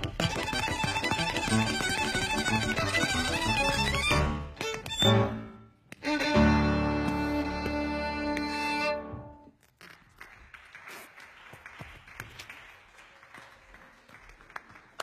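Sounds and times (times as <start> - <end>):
violin music: 0.0 - 9.5
faint scattered applause: 10.0 - 15.0.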